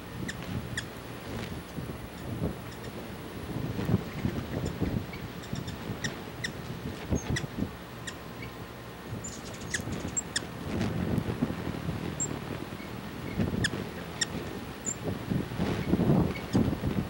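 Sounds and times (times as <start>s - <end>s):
wind gusts on microphone: 0.0s - 17.0s
hummingbird chip calls: 0.2s - 1.0s, 2.1s - 3.0s, 4.0s - 8.6s, 9.2s - 10.6s, 12.2s - 15.1s.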